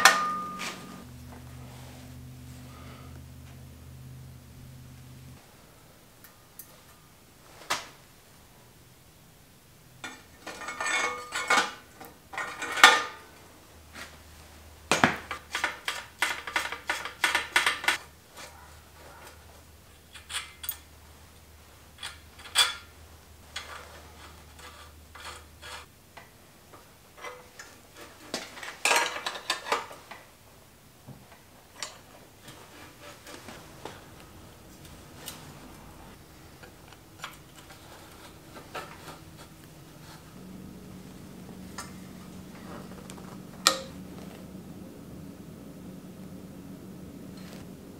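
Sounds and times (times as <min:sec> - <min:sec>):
metal bearing parts clinking: 0:00.0 - 0:01.1.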